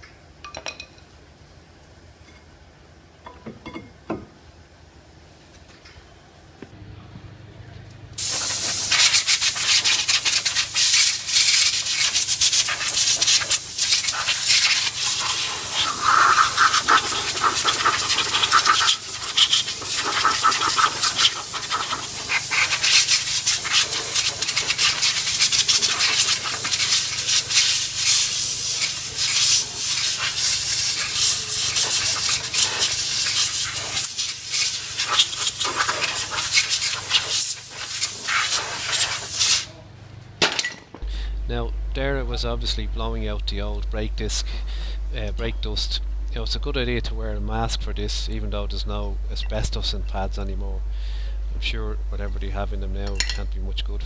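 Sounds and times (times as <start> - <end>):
compressed air blow gun hissing: 8.2 - 39.7.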